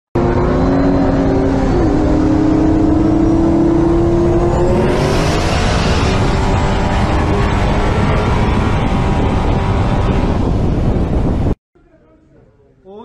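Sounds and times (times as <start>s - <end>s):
car engine accelerating: 0.2s - 11.6s
road and wind noise: 0.2s - 11.6s.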